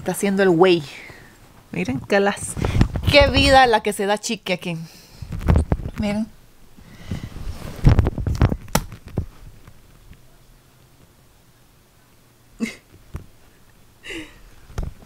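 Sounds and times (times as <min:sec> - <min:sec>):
phone microphone handling noise: 0:02.5 - 0:03.7, 0:05.2 - 0:06.2, 0:07.0 - 0:09.9.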